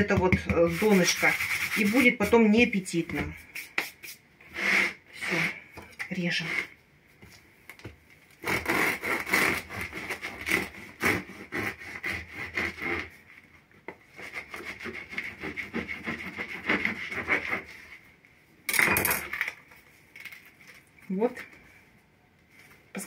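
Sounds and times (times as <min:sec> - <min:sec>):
bread knife sawing through crust: 0:00.6 - 0:02.2, 0:04.5 - 0:05.6, 0:08.4 - 0:13.2, 0:14.1 - 0:17.9.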